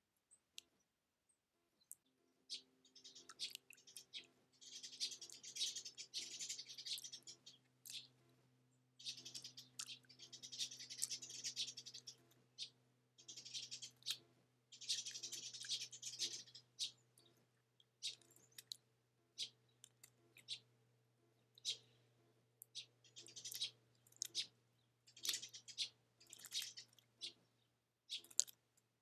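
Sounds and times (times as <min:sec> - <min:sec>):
small ticks: 0:01.8 - 0:08.1, 0:09.0 - 0:14.2, 0:14.8 - 0:18.8, 0:19.4 - 0:20.7, 0:22.6 - 0:27.4, 0:28.1 - 0:28.6.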